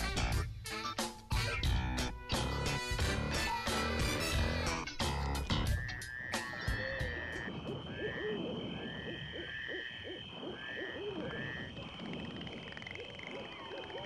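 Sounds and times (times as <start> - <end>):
lower warbling calls: 5.5 - 14.0.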